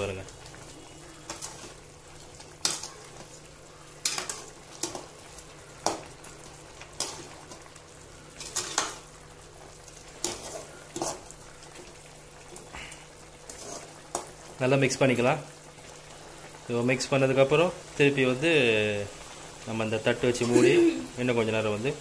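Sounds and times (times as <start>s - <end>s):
metal ladle scraping a pan: 1.2s - 1.9s, 4.0s - 5.1s, 8.3s - 9.1s, 10.2s - 11.4s, 13.4s - 14.3s
low hiss: 14.1s - 22.0s.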